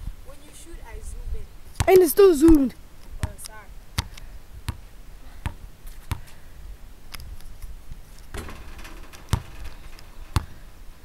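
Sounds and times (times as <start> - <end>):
basketball bouncing on asphalt: 1.8 - 2.6, 3.2 - 3.4, 4.0 - 6.4, 8.3 - 9.7, 10.3 - 10.6.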